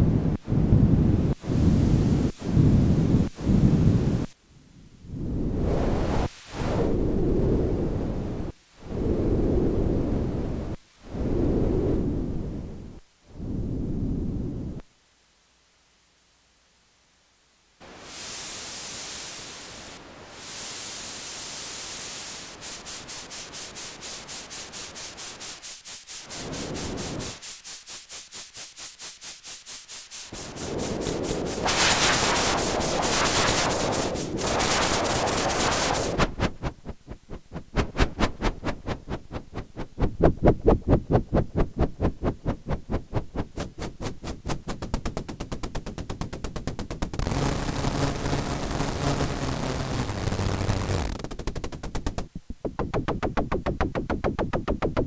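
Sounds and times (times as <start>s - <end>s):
synthesizer noise hiss and pulses: 0.0s - 16.3s, 17.0s - 55.0s.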